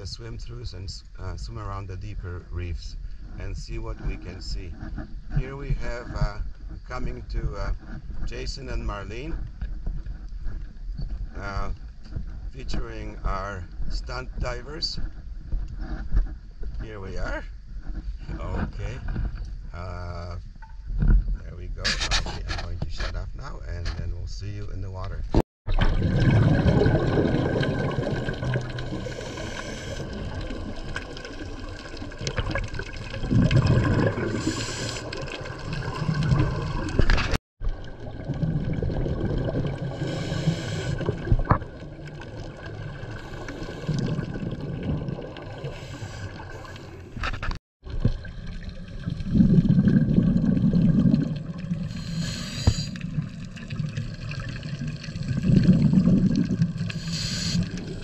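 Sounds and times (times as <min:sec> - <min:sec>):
exhaled bubbles rumbling: 0:25.7 - 0:58.0
regulator inhalation hiss: 0:40.0 - 0:41.0, 0:51.9 - 0:53.0, 0:56.9 - 0:57.8.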